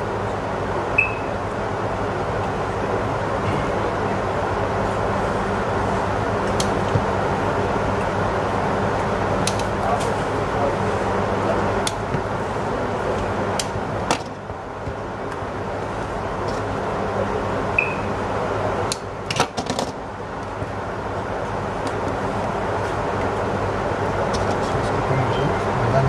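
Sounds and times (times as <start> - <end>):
room noise hum and hiss: 0.0 - 26.0.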